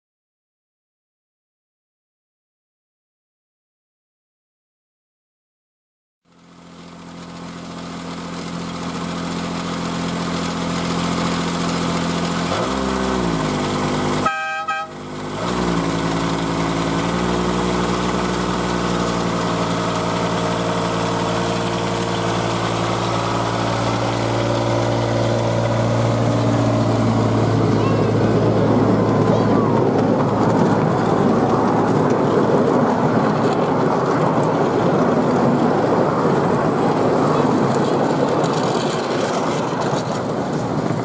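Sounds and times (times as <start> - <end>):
locomotive diesel engine revving: 6.7 - 41.0
locomotive horn toot: 14.2 - 15.0.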